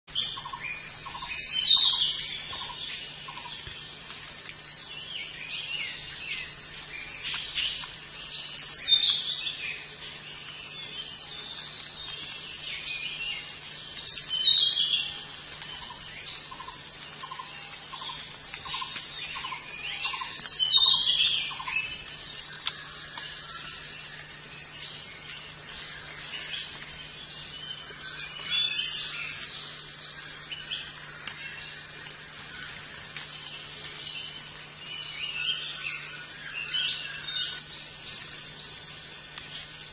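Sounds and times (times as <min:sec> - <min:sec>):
lower evenly spaced bird notes: 0:00.1 - 0:39.9
high bird chirping: 0:10.6 - 0:31.9.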